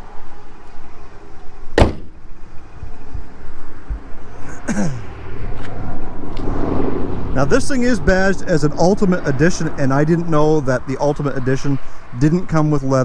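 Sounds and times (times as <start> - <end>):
car hood slammed shut: 1.8 - 2.2.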